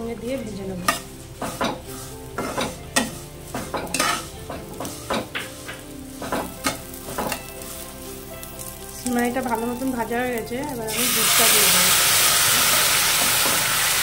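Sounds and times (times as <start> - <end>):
food sizzling in oil: 0.0 - 14.0
steel spatula scraping a pan: 0.8 - 8.7.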